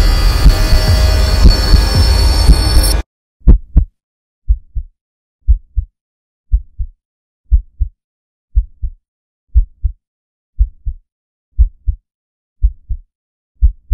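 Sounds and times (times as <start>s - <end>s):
heartbeat double thumps: 0.0s - 3.9s, 4.5s - 5.9s, 6.5s - 10.0s, 10.6s - 11.0s, 11.6s - 12.0s, 12.6s - 13.9s.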